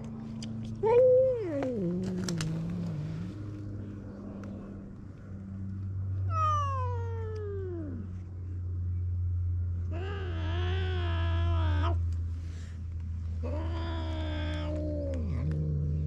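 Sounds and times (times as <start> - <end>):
cat growling: 1.3 - 4.9, 6.2 - 8.2, 9.9 - 12.0, 13.3 - 16.0
cat yowling: 6.3 - 8.1, 9.9 - 12.0, 13.4 - 15.6.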